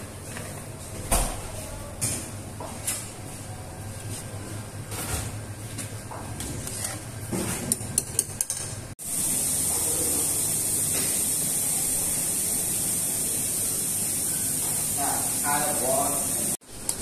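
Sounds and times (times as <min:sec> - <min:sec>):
loud steady hiss: 0:09.0 - 0:16.6.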